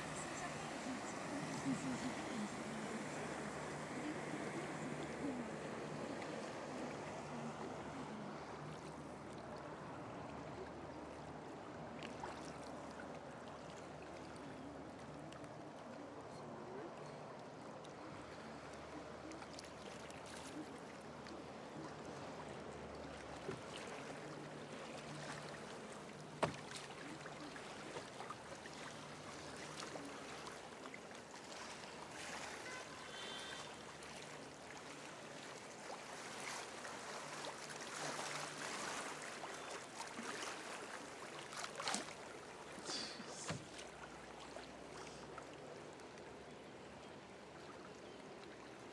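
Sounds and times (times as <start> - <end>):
river water rushing: 0.0 - 10.3, 21.8 - 46.4
wind: 0.0 - 48.9.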